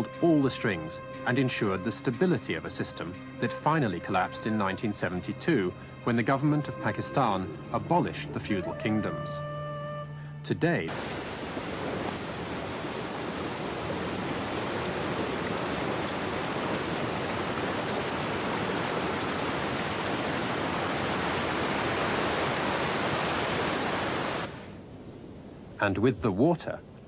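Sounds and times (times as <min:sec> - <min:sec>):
water rushing over rocks: 0:10.9 - 0:24.6.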